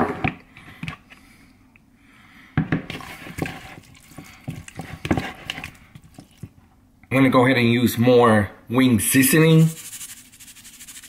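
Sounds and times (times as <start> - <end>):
wet squelching of chicken: 2.9 - 6.5.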